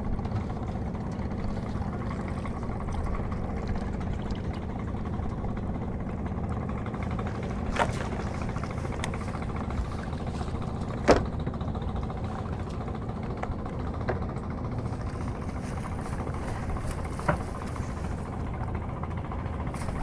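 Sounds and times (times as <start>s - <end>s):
boat engine running: 0.0s - 20.0s.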